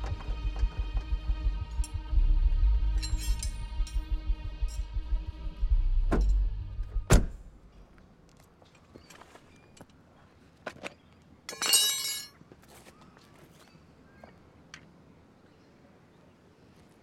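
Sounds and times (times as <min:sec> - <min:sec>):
car boot lid slamming: 0:07.0 - 0:07.5
soft footsteps on road: 0:07.6 - 0:11.4, 0:12.4 - 0:15.7, 0:16.5 - 0:17.0
metal tools clattering on asphalt: 0:10.7 - 0:12.4.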